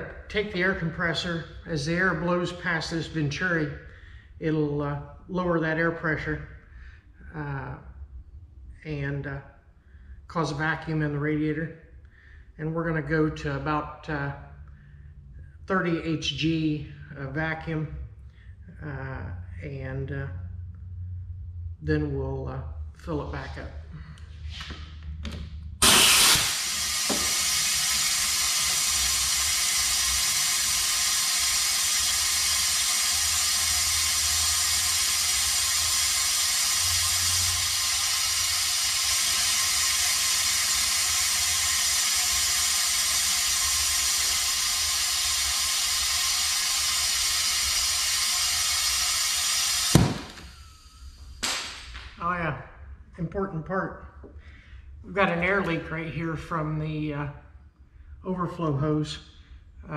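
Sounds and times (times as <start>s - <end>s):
compressed air hissing: 25.8s - 51.8s.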